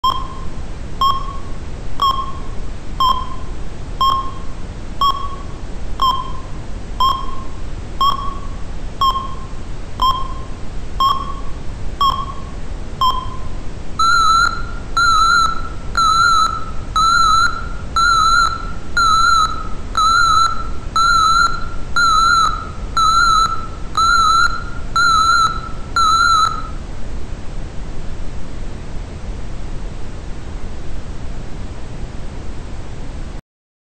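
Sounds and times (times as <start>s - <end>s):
fire alarm beeping: 0.0s - 26.8s.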